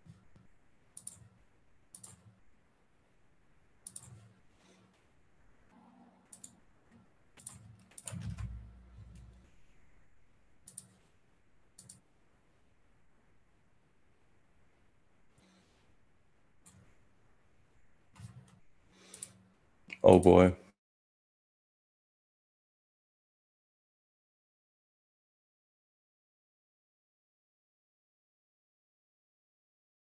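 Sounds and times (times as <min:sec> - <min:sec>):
keyboard and mouse clicks: 0:00.0 - 0:02.4, 0:03.8 - 0:04.9, 0:06.2 - 0:09.5, 0:10.6 - 0:11.1, 0:11.7 - 0:12.1, 0:16.6 - 0:17.0, 0:18.1 - 0:20.0.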